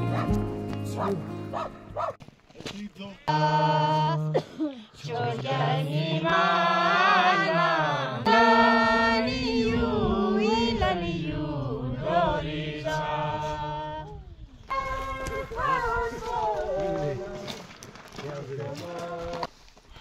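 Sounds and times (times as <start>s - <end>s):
group singing slow chant: 3.3s - 17.6s.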